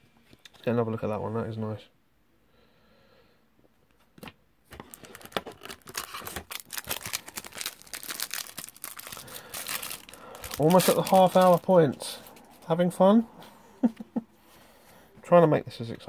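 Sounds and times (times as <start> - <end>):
wrapper crinkling: 4.7 - 12.7
wrapper tearing: 4.8 - 12.6.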